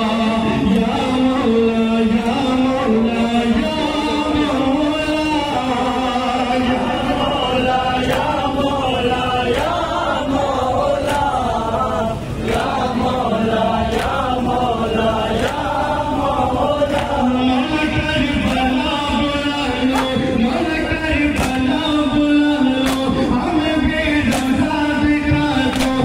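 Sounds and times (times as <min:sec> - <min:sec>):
men chanting in unison: 0:00.0 - 0:26.0
chest-beating slaps: 0:21.3 - 0:21.7, 0:24.3 - 0:24.6, 0:25.7 - 0:26.0.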